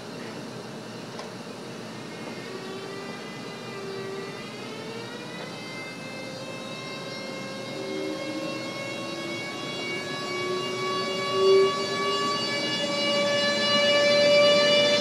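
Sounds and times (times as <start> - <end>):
electric locomotive whine: 0.0 - 15.0.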